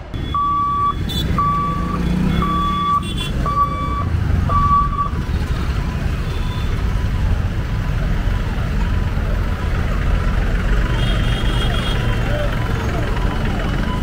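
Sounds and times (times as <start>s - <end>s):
motorbike and car engines: 0.0s - 14.0s
electronic warning beeper: 0.2s - 5.2s.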